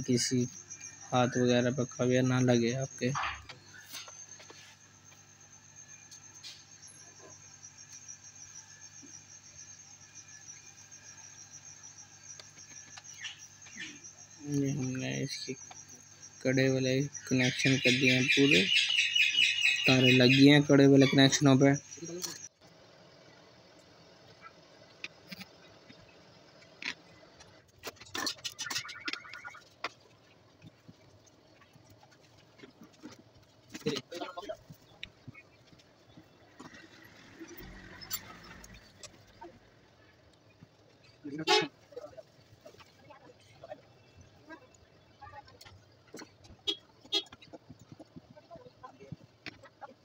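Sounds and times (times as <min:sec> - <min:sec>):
high-pitched insect trill: 0:00.0 - 0:22.6, 0:28.1 - 0:29.8, 0:36.2 - 0:39.7.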